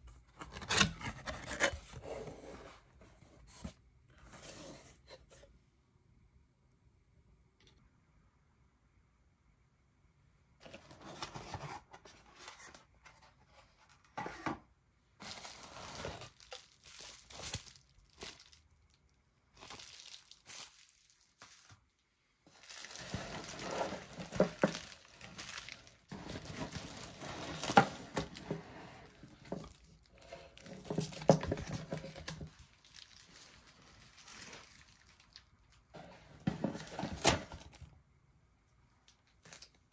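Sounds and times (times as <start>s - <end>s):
packaging rustling and crinkling: 15.2s - 37.9s.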